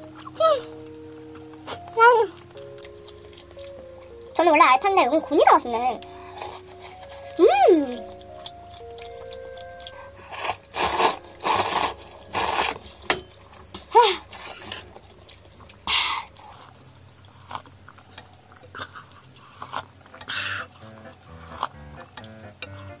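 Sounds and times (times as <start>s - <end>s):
person humming: 0.0s - 1.0s
chewing and mouth clicks: 0.0s - 23.0s
person slurping noodles: 10.3s - 12.9s.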